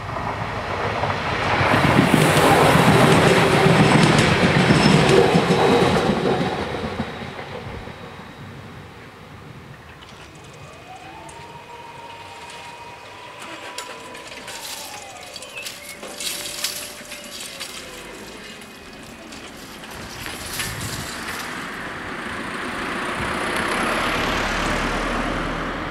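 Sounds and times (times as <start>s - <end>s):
barrier motors whining: 1.7s - 25.9s
car driving past: 10.6s - 25.9s.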